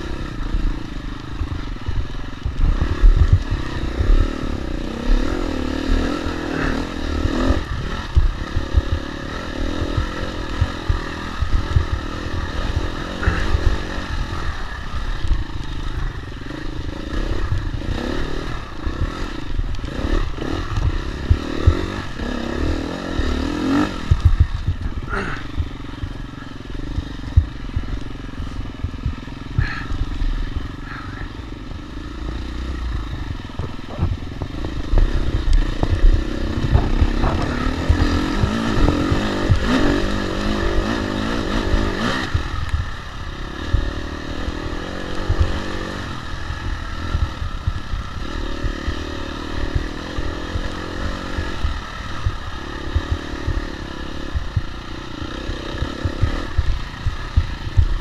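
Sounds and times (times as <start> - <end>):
dirt bike engine revving: 0.0 - 58.0
wind rumble on microphone: 23.2 - 25.8, 32.6 - 58.0.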